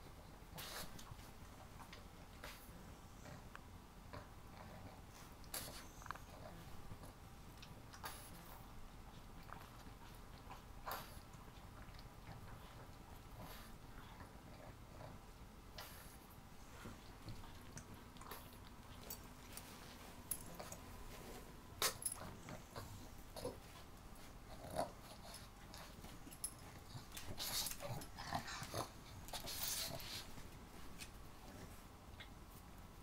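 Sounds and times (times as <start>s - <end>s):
rustling on dog bed: 18.8s - 32.7s
dogs snorting: 21.8s - 30.4s
dogs growling: 24.5s - 30.2s.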